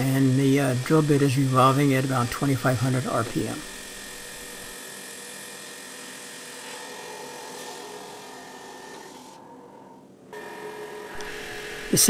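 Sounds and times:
milling machine spindle whine: 0:00.0 - 0:12.0.

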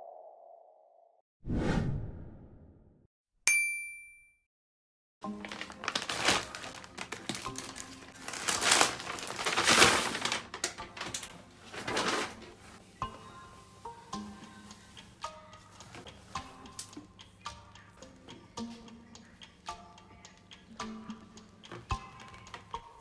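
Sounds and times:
plastic mailer bag torn open: 0:05.3 - 0:12.4
cloth bag handled: 0:05.4 - 0:12.8.

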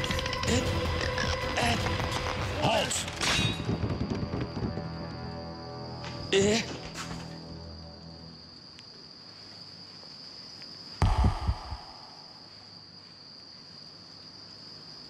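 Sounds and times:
crickets chirping: 0:00.0 - 0:15.0
heavy thump: 0:11.0 - 0:12.0.

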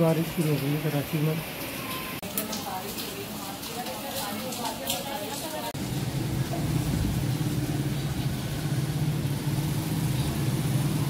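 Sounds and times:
engine hum: 0:05.8 - 0:11.0.

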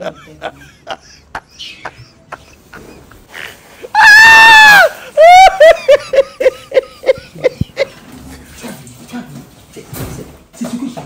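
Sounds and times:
person laughing: 0:00.0 - 0:03.2, 0:05.0 - 0:08.0
person screaming: 0:03.9 - 0:05.7.

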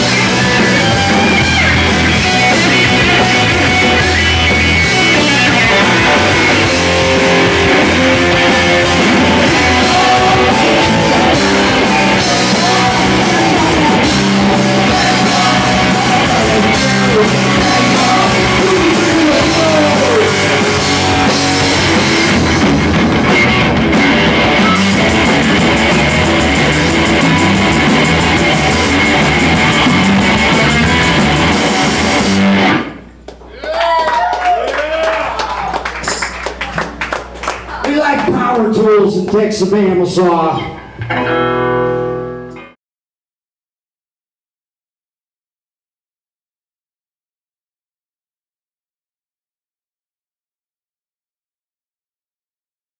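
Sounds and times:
live rock band playing: 0:00.0 - 0:33.2, 0:35.9 - 0:42.8.

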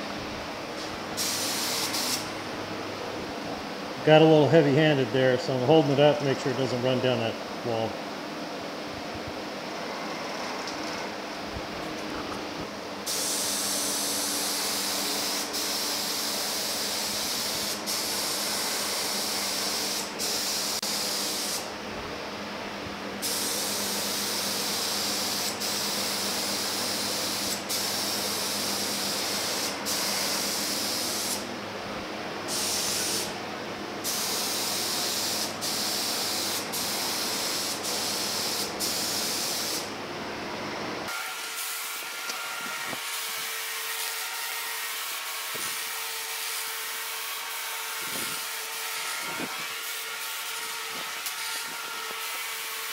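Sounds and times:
spray gun hissing: 0:01.2 - 0:02.3, 0:13.0 - 0:21.7, 0:23.2 - 0:31.5, 0:32.5 - 0:33.4, 0:34.0 - 0:39.9.

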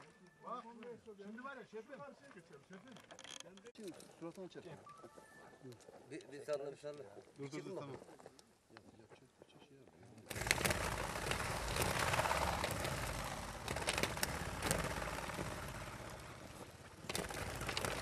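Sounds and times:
sharp clicks and rattles: 0:02.7 - 0:04.4, 0:10.3 - 0:18.0
wings flapping whirr: 0:10.3 - 0:18.0.

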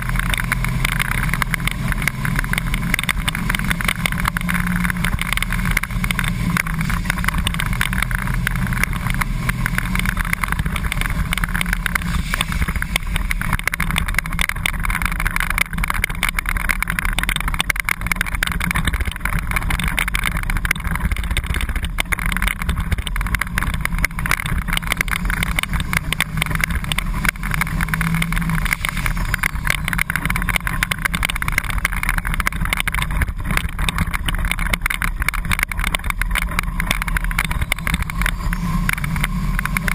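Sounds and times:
bus rumble at speed: 0:00.0 - 0:39.9.

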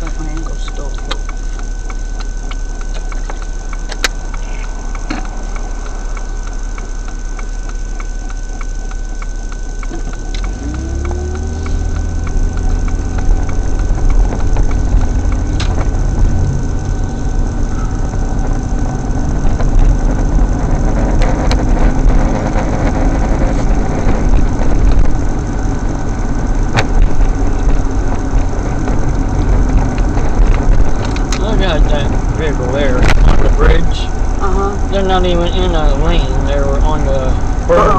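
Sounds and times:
car engine: 0:00.0 - 0:37.9
tyre road noise: 0:00.0 - 0:37.9
sharp clicks: 0:00.4 - 0:16.5, 0:26.2 - 0:34.3.

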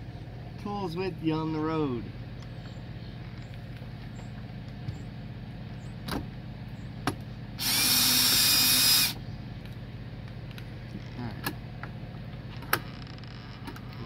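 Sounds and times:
cordless drill whining: 0:07.6 - 0:09.2.

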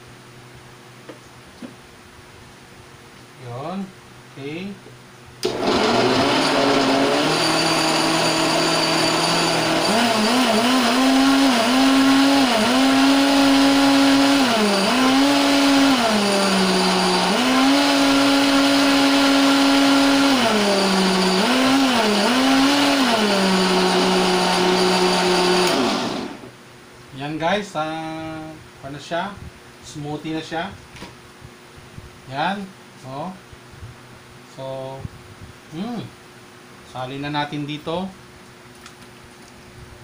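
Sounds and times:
blender motor running at high speed: 0:05.4 - 0:26.5.

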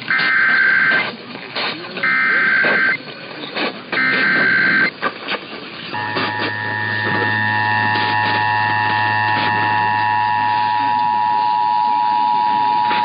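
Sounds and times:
crackling radio static: 0:00.0 - 0:13.0
two-tone attention signal: 0:00.1 - 0:01.1, 0:02.0 - 0:03.0, 0:03.9 - 0:04.9, 0:05.9 - 0:13.0
harsh digital warble: 0:00.1 - 0:01.2, 0:02.0 - 0:03.0, 0:03.9 - 0:04.9, 0:05.9 - 0:12.1
low hum: 0:05.9 - 0:13.0.

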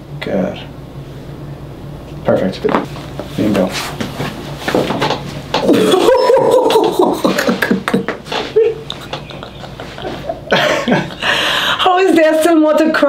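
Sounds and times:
person laughing: 0:05.6 - 0:12.0.

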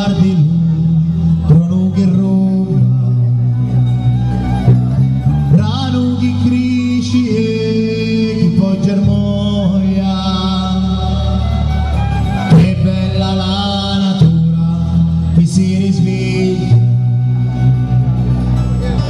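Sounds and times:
man singing in chant-like style: 0:00.0 - 0:03.4, 0:05.5 - 0:11.6, 0:12.5 - 0:17.1
held bass notes: 0:00.0 - 0:19.0.

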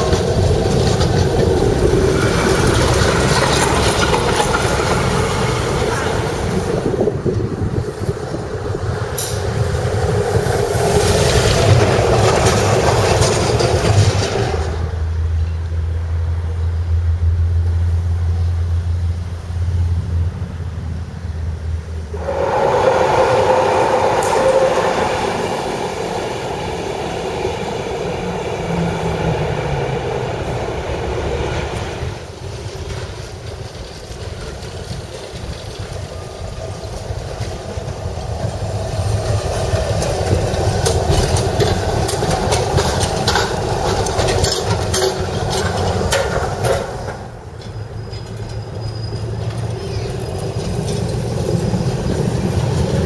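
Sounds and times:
wheel-on-rail clatter: 0:00.0 - 0:15.6, 0:24.5 - 0:53.0
tram wheels rumbling: 0:00.0 - 0:53.0
low steady drone: 0:15.2 - 0:32.3.

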